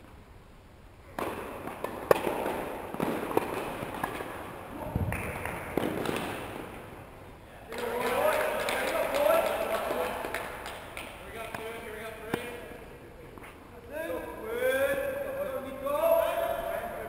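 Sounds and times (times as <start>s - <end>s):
tennis balls struck by rackets: 1.1s - 7.0s, 10.4s - 12.7s.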